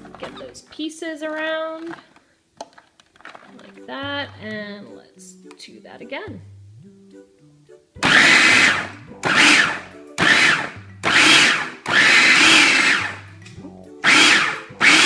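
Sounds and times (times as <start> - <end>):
food processor pulsing: 8.0 - 13.3, 14.0 - 15.0.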